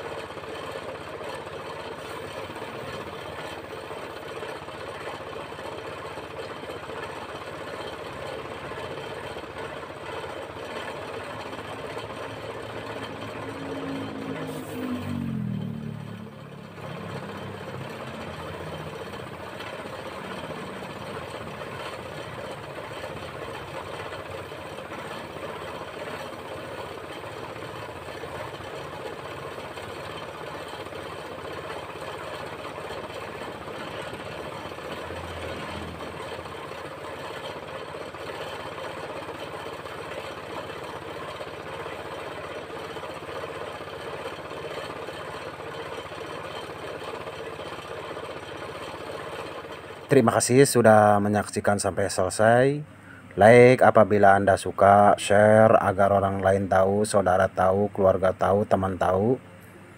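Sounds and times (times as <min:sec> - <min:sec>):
spray-painting compressor drone: 0:00.0 - 0:09.6, 0:11.1 - 0:39.8.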